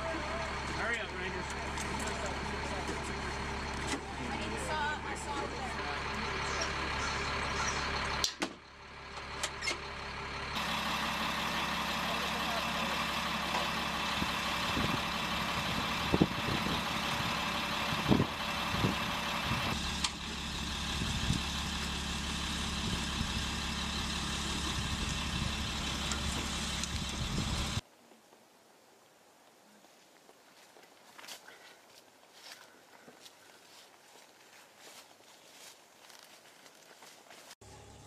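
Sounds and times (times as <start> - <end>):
diesel truck engine idling: 0.0 - 27.8.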